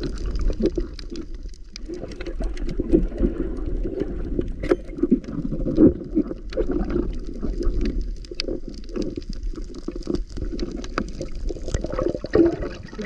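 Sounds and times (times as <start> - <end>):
muffled underwater water rumble: 0.0 - 13.0
small clicks and crackles: 0.0 - 13.0.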